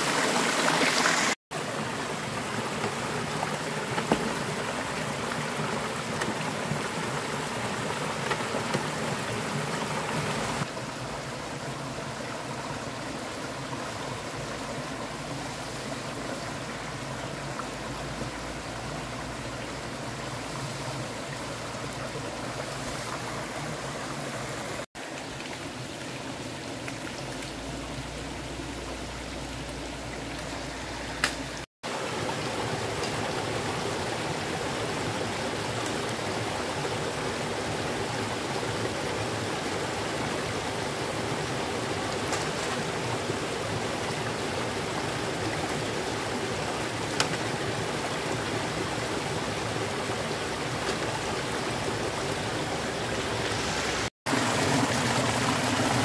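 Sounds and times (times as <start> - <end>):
stream rushing over rocks: 0.0 - 56.0
faint sharp clicks: 31.2 - 31.4.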